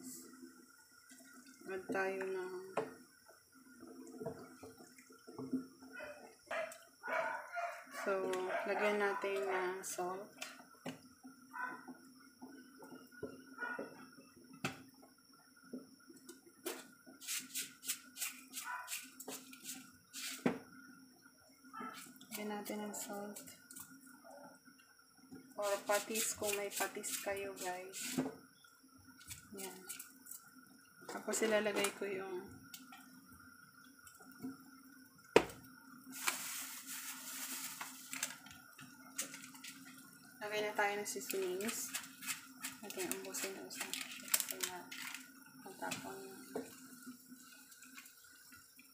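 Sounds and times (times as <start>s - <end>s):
soup simmering and bubbling: 0.0s - 8.4s, 27.9s - 40.4s, 41.3s - 48.9s
faint steady hum: 0.0s - 48.9s
hiss: 16.7s - 20.6s, 25.6s - 28.3s, 35.4s - 38.4s.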